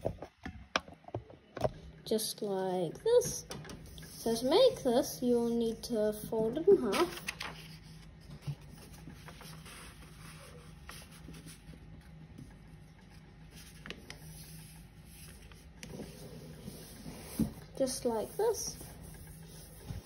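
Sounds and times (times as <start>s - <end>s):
paper rustling and sliding: 6.7s - 20.0s.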